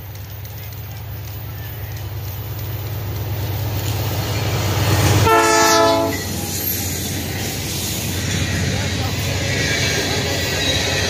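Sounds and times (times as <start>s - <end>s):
diesel locomotive engine rumble: 0.0s - 11.0s
locomotive horn blast: 5.2s - 6.3s.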